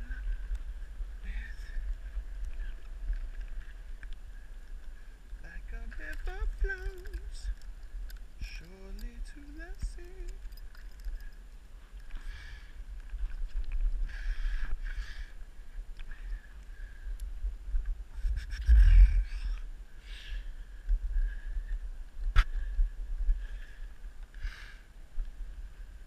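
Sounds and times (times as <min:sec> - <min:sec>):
low rumble: 0:00.0 - 0:24.1
wind noise: 0:00.0 - 0:26.0
person's voice: 0:05.4 - 0:07.6, 0:08.4 - 0:10.5.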